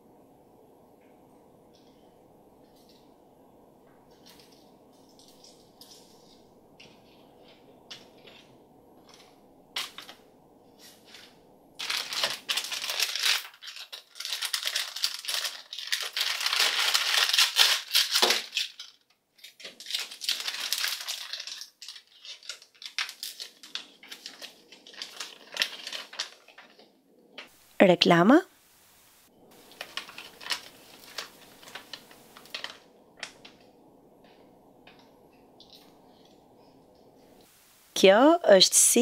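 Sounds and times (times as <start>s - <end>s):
plastic bag crinkling: 10.8s - 27.4s, 29.4s - 36.4s.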